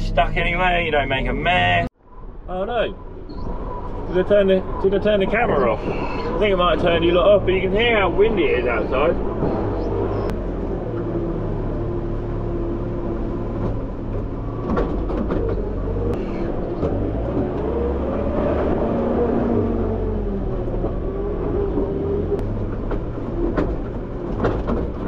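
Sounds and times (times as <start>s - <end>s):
telehandler engine revving: 0.0s - 1.9s, 2.5s - 25.0s.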